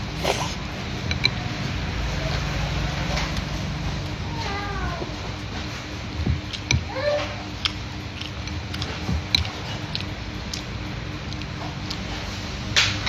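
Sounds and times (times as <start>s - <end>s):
steady low hum: 0.0s - 13.0s
crunchy vegetable chewing: 5.5s - 12.8s.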